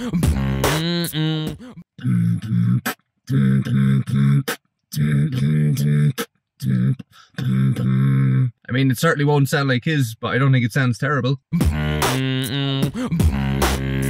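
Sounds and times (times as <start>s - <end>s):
beatbox spit snare hits: 0.0s - 1.6s, 11.6s - 14.0s
beatboxing throat bass: 0.0s - 8.7s, 11.5s - 14.0s.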